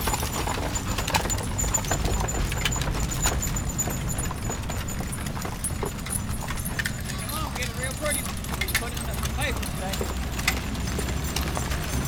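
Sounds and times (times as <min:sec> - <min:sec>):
hooves clopping on asphalt: 0:00.0 - 0:12.0
wagons knocking and rattling: 0:00.0 - 0:12.0
wheels rumbling on road: 0:00.0 - 0:12.0.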